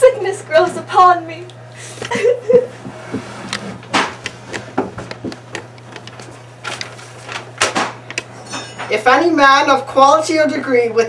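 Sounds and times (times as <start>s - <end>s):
steady low hum: 0.0s - 11.0s
handling knocks and clicks: 2.8s - 8.3s.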